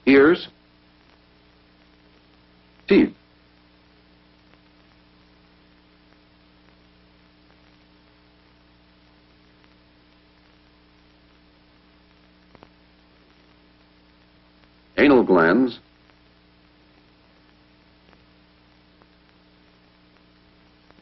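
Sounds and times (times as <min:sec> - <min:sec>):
film soundtrack hum and hiss: 0:00.0 - 0:21.0
faint clicks: 0:12.1 - 0:14.8, 0:15.8 - 0:21.0.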